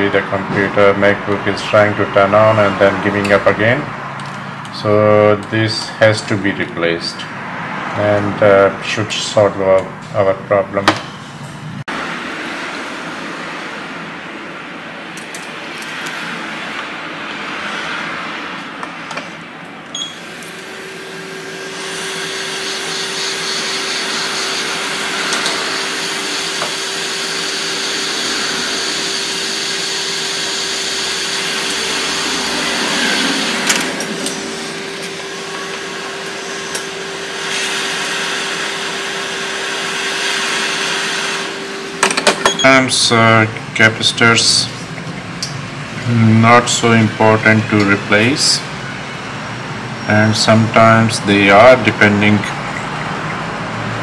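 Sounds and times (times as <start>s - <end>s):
fan hum: 0.0s - 54.0s
hot air blower rushing: 20.1s - 44.7s.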